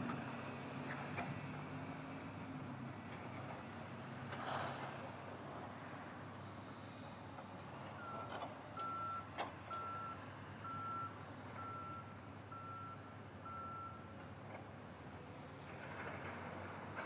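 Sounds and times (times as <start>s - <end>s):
reversing alarm beeps: 8.0s - 14.1s.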